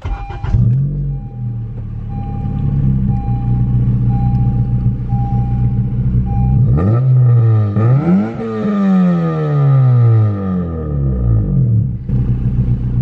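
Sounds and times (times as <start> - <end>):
warning chime beeping: 0.0 - 7.4
car engine idling and revving: 0.0 - 13.0.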